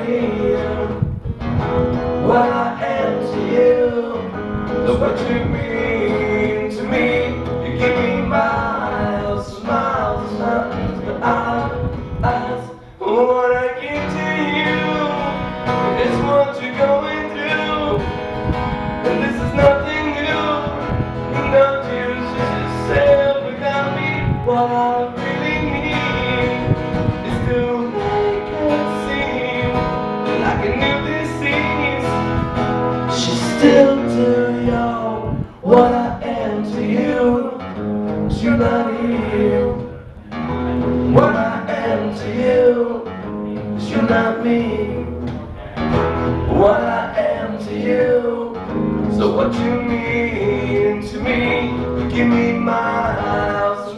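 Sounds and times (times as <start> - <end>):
acoustic guitars strummed: 0.0 - 53.9.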